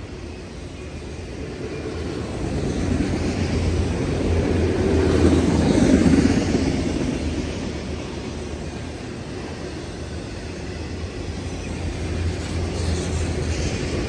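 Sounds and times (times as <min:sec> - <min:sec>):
freight cars rumbling on rails: 0:00.0 - 0:14.0.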